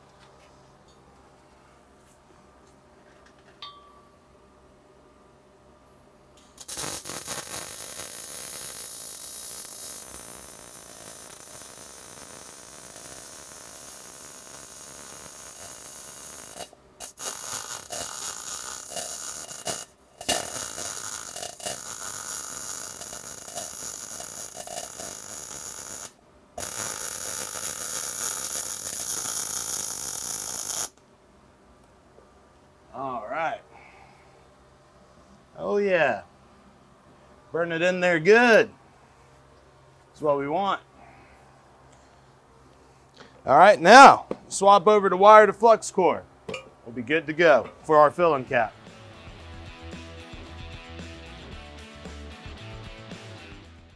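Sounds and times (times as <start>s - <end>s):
welder arc crackling hiss: 6.4s - 31.0s.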